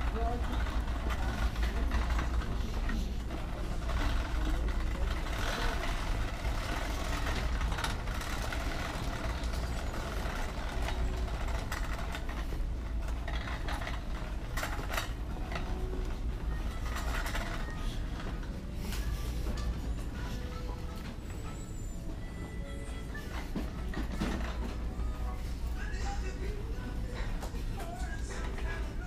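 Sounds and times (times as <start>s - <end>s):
cart rattling clicks: 0.0s - 18.6s, 23.4s - 25.0s
shopping cart rolling on hard floor: 0.0s - 29.0s.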